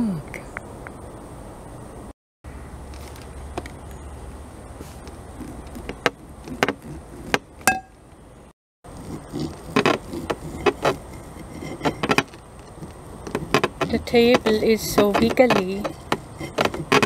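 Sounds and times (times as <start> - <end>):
knife cutting on ceramic plate: 9.1 - 17.0.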